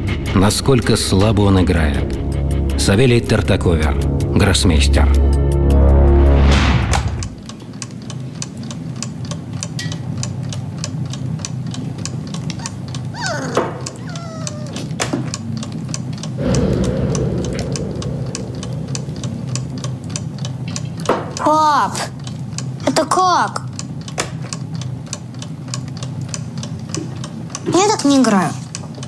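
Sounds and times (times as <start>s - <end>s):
low hum: 0.0s - 7.7s, 16.4s - 21.1s.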